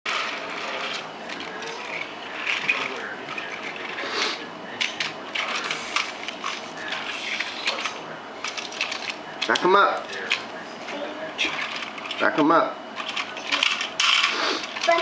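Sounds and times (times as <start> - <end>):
toy train motor whirring: 0.1 - 9.5, 13.0 - 15.0.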